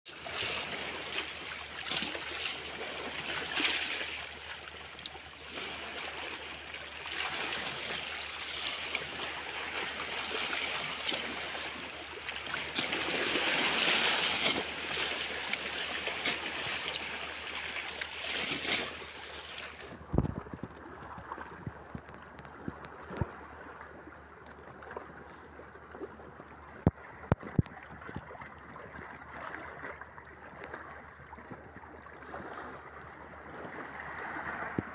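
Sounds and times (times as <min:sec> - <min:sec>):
small waves washing over rocks: 0:00.1 - 0:21.7, 0:32.2 - 0:34.9.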